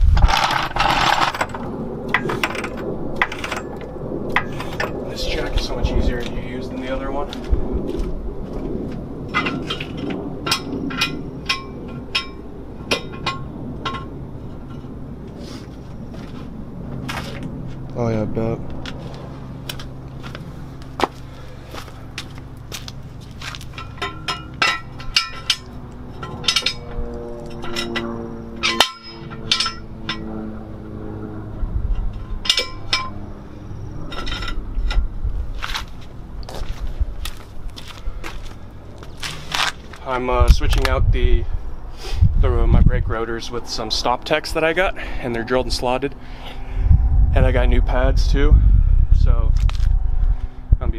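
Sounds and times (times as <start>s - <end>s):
low background rumble: 0.0s - 50.9s
floor jack metallic clinks: 23.5s - 30.3s, 34.0s - 35.1s.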